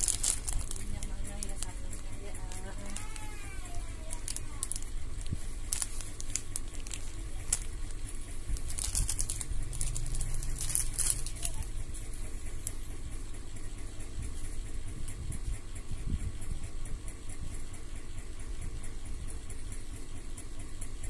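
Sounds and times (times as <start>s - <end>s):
plastic bag crinkling: 0.0s - 11.7s
steady low hum: 0.0s - 21.0s.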